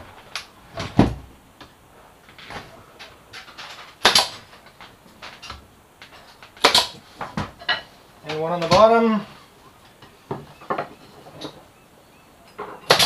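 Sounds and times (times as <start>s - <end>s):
knocks and clatters: 2.3s - 8.9s
nailer firing crack: 3.6s - 4.6s, 6.5s - 7.0s.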